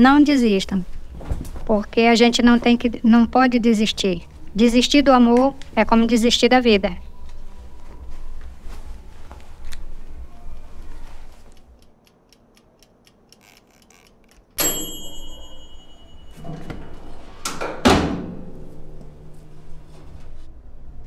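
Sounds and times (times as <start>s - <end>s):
oven timer ticking: 11.5s - 15.8s
timer bell ding: 14.6s - 16.5s.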